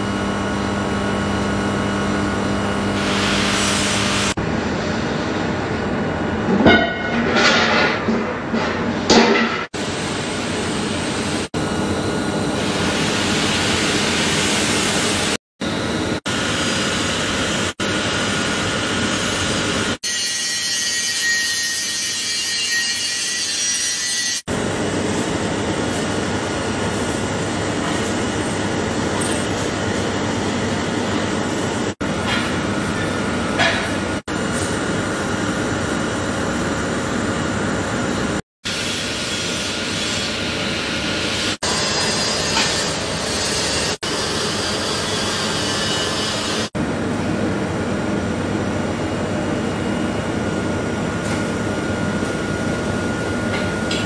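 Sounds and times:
welding arc hissing: 2.9 - 4.4.

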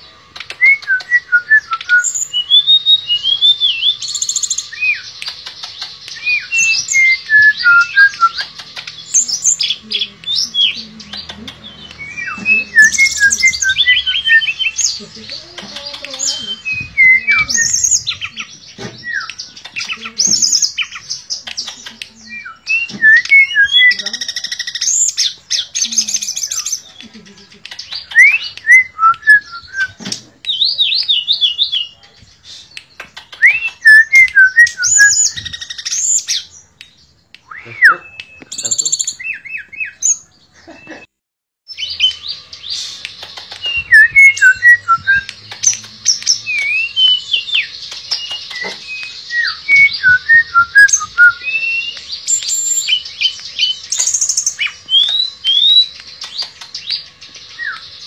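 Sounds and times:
songbird singing whistles and trills: 0.3 - 41.1, 41.7 - 58.0.

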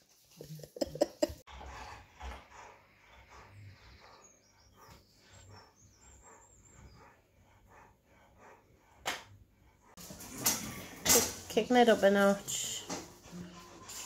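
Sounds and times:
dog panting: 0.9 - 10.3.

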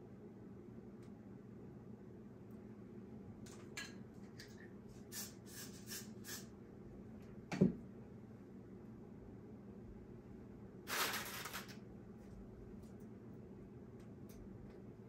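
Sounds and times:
aerosol spray hissing: 5.1 - 6.5.

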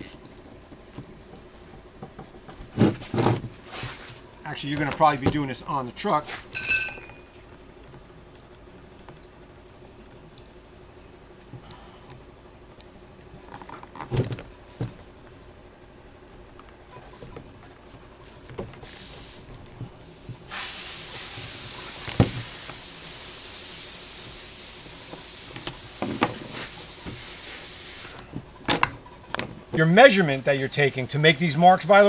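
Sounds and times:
loud steady hiss: 18.7 - 29.0, 29.7 - 32.0.

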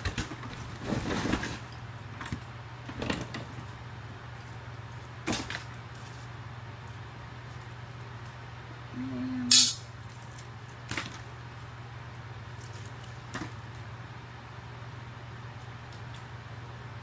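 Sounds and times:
metal scrap clinking: 9.5 - 9.8.

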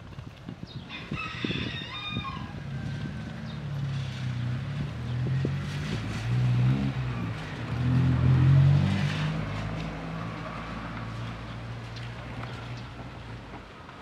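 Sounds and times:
cars accelerating past: 2.6 - 13.5.

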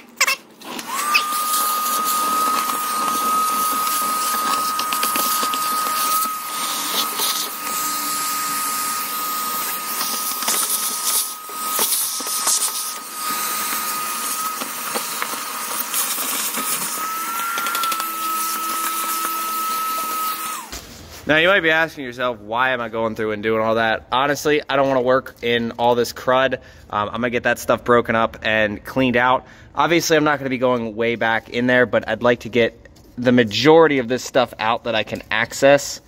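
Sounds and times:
shop vacuum whining: 0.0 - 21.6.

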